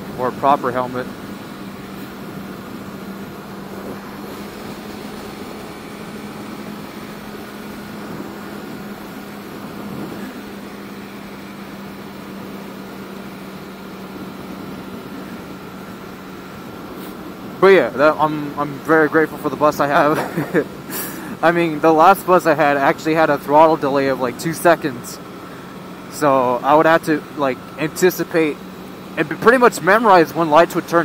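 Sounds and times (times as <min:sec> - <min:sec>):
motorcycle engine humming: 0:00.0 - 0:31.0
wind and road noise: 0:00.0 - 0:31.0.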